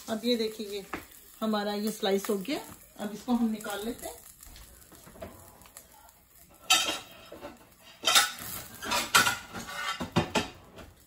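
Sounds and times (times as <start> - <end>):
metal utensils clinking on dishes: 6.5 - 11.0.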